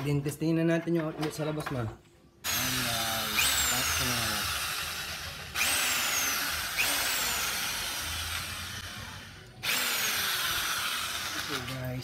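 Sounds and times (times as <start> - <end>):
electric drill bursts: 2.4 - 11.9.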